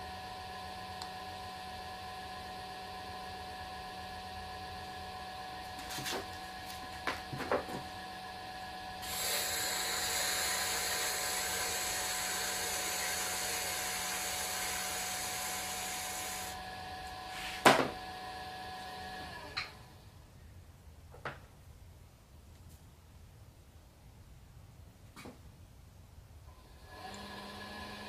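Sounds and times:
pottery wheel motor whine: 0.0s - 20.1s, 26.5s - 28.0s.

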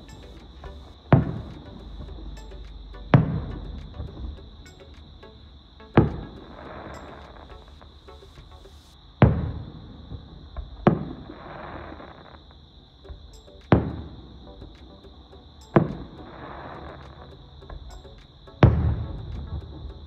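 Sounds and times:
crackling hiss of fireworks: 5.9s - 12.6s.

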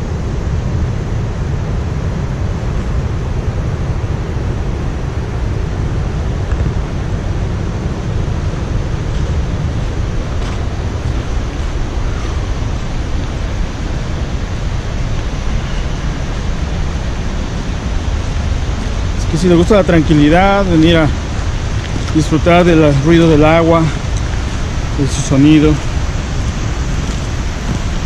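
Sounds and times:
water rushing over falls and rapids: 0.0s - 28.0s.

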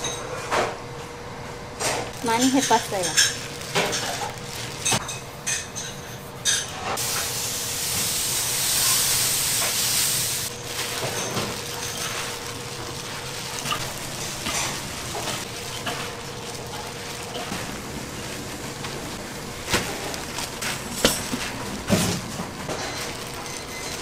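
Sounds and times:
utensils clinking: 1.8s - 7.0s, 10.5s - 17.6s, 19.9s - 24.0s.

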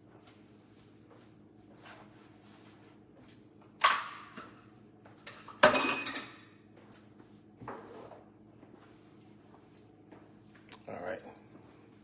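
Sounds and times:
dishes and utensils clattering: 5.2s - 6.6s.

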